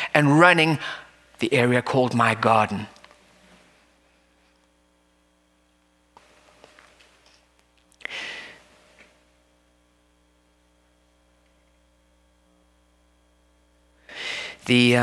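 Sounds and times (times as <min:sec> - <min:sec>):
faint electrical hum: 0:00.0 - 0:15.0
man breathing into microphone: 0:08.0 - 0:08.6, 0:14.0 - 0:14.6
sharp sigh-like exhale: 0:08.0 - 0:08.6, 0:14.1 - 0:14.6.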